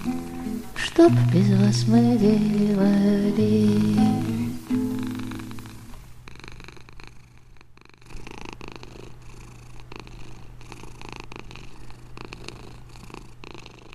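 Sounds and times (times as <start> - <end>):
cat purring: 0.0 - 13.9.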